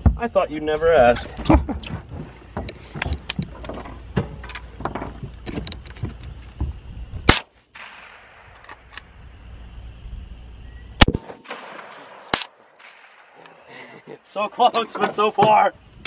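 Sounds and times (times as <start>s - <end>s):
loud gunshot: 7.3s - 8.6s, 11.0s - 13.4s
gun handling clicks: 7.3s - 9.1s.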